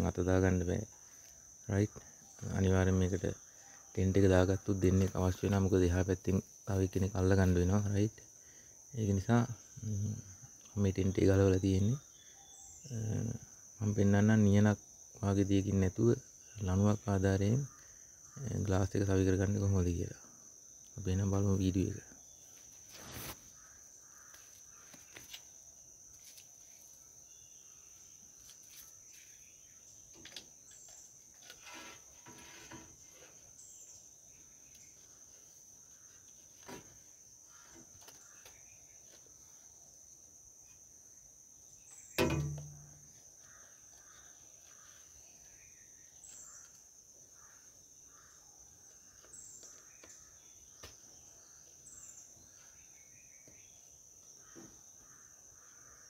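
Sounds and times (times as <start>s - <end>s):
crickets trilling: 0.0s - 56.0s
loud thump: 42.2s - 42.9s.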